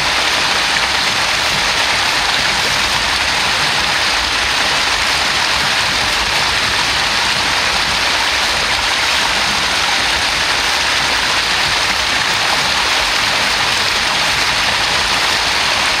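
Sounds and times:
water rushing over rock ledge: 0.0 - 16.0.

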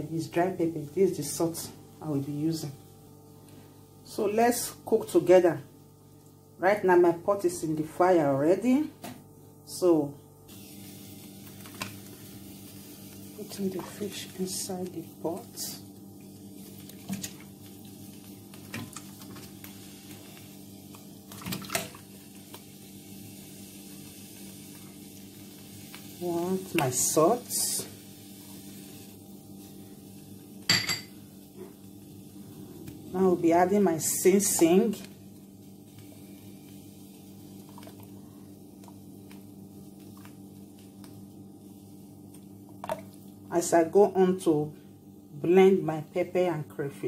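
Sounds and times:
steady low hum: 0.0 - 47.0
low hum: 22.1 - 42.4.

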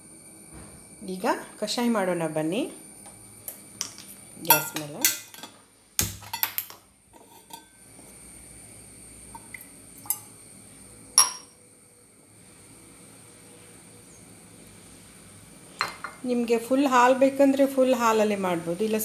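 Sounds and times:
metal-on-metal clink: 11.2 - 11.6.

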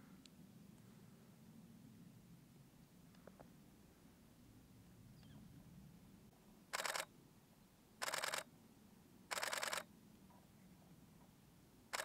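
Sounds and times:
camera shutter rapid clicks: 6.8 - 7.1, 8.0 - 8.5, 9.3 - 9.8.

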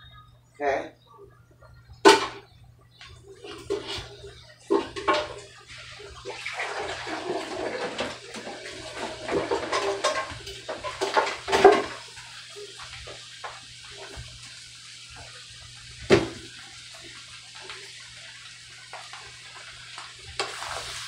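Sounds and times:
dishes and utensils clattering: 2.0 - 2.5, 3.3 - 12.2
faucet water running into sink: 3.2 - 21.0.

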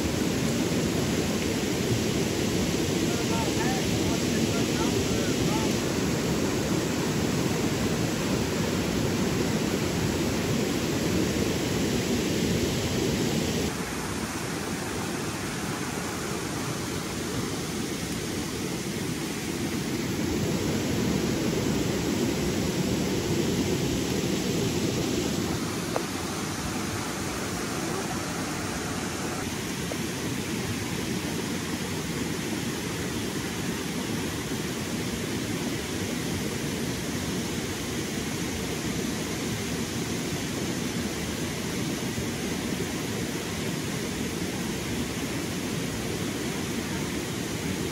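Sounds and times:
stream water rushing: 0.0 - 47.9.

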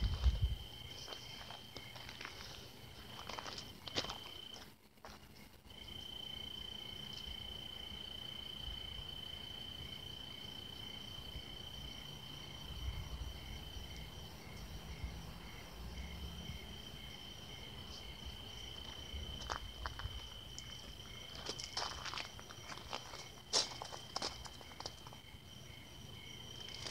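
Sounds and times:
cricket trill: 0.0 - 26.9
insect chirping pulses: 5.4 - 26.9.

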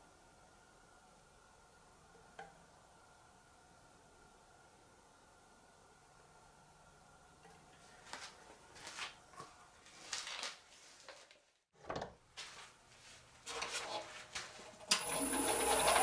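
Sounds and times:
power tool whining hum: 14.9 - 16.0.

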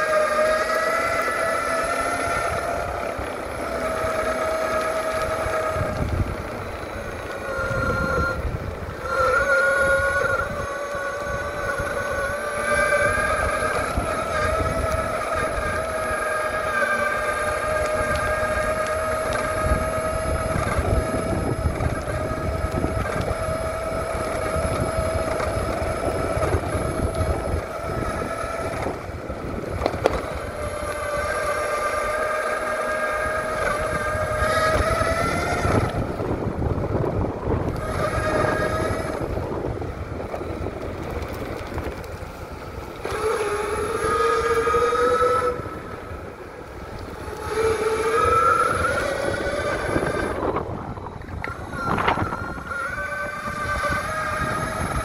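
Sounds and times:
electric motor whine: 0.0 - 55.0
tyres rumbling: 0.0 - 55.0.

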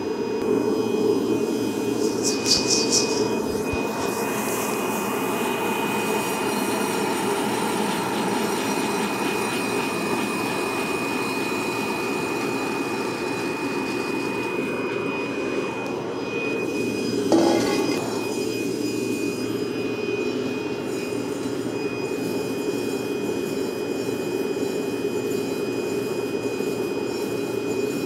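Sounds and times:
rush of hot air from blower: 0.0 - 15.8
thin high whine: 0.0 - 28.0.

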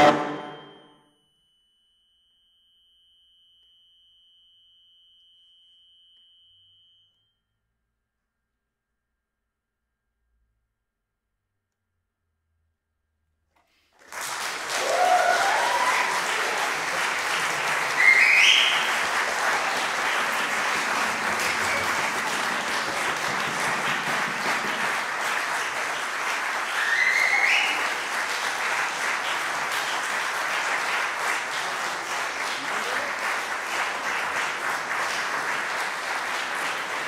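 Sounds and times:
audience applause: 13.9 - 37.0
calls rising in pitch: 15.0 - 23.2, 26.6 - 28.0.

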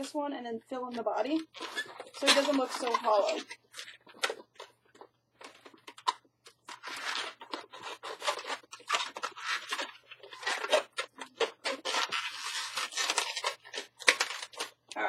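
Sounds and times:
rubber balloons squeaking: 0.9 - 14.8.

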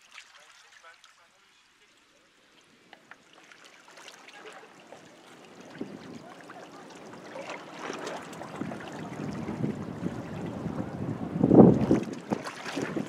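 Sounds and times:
small waves lapping on rocks: 0.0 - 13.0
wind buffeting microphone: 5.4 - 13.0.

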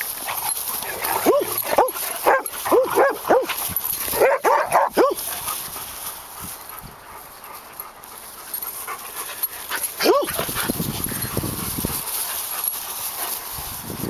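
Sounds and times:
puppies barking: 0.0 - 5.5, 8.8 - 11.4.

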